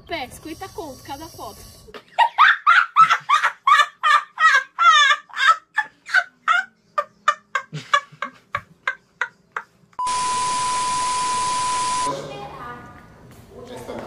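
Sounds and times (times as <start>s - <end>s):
boy laughing hard: 2.2s - 9.3s.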